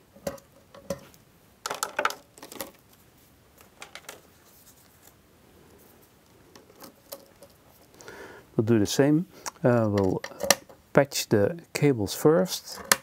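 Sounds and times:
patch cables clicking and clattering: 0.2 - 2.9, 3.6 - 4.2, 6.2 - 8.0, 9.5 - 10.8.

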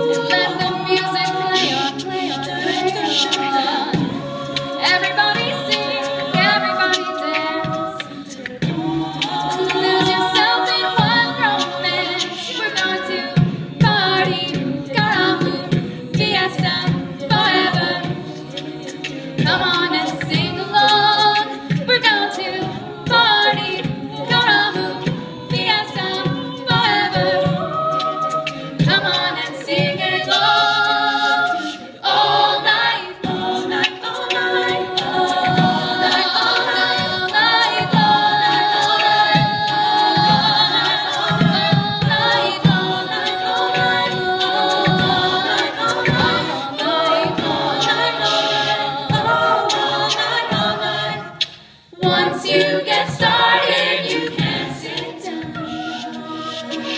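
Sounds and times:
a cappella vocal ensemble singing: 0.0 - 56.9.

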